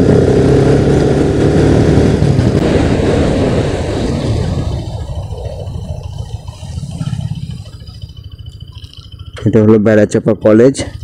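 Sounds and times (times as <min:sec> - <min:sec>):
wind rushing over microphone: 0:00.0 - 0:08.0
motorcycle engine running: 0:00.0 - 0:11.0.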